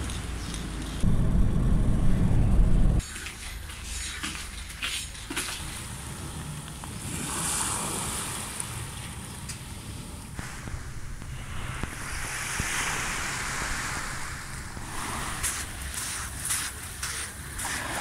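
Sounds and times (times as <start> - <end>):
car road noise: 0.0 - 3.0, 10.4 - 16.8
waves washing onto pebbles: 5.3 - 18.0.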